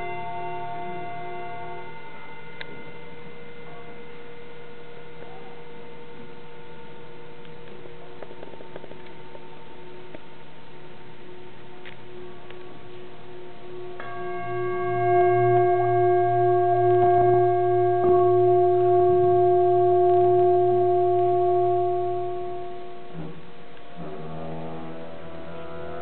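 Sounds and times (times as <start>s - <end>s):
singing bowl ringing: 0.0s - 5.1s, 13.6s - 23.2s
didgeridoo low drone: 0.0s - 5.5s, 7.0s - 26.0s.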